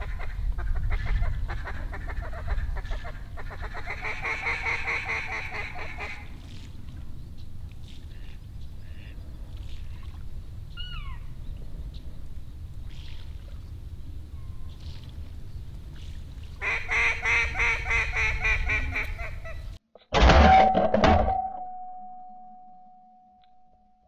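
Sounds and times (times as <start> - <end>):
low wind rumble: 0.0 - 19.8
duck quacking rapidly: 16.6 - 19.6.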